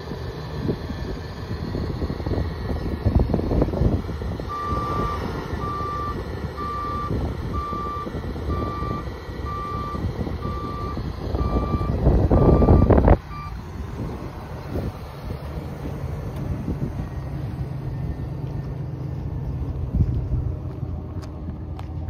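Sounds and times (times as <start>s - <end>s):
reversing alarm beeping: 4.4s - 13.6s
low rumble: 10.1s - 22.0s.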